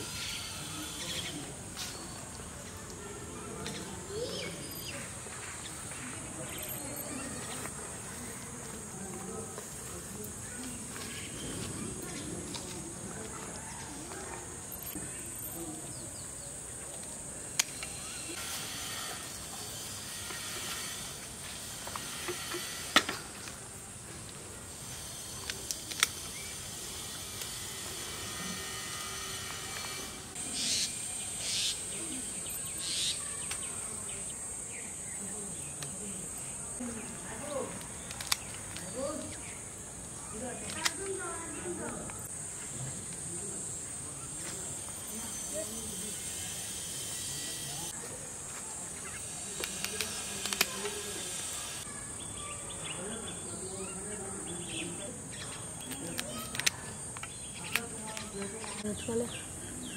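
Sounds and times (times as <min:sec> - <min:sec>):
high insect drone with crickets: 0:00.0 - 0:59.9
steady high hiss: 0:13.9 - 0:59.9
pruning shears snipping: 0:38.0 - 0:38.9, 0:49.6 - 0:51.0.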